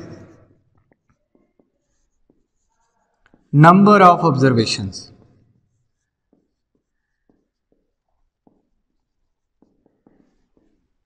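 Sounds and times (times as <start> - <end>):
marker pen squeaking on whiteboard: 0.0 - 3.5, 5.6 - 11.0.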